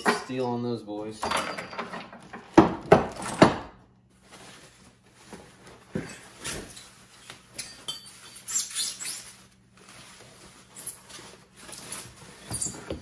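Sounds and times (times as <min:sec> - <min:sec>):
metal chain clanking: 0:01.2 - 0:02.3, 0:12.4 - 0:13.0
plastic and cardboard rustling: 0:04.2 - 0:07.5, 0:08.1 - 0:13.0.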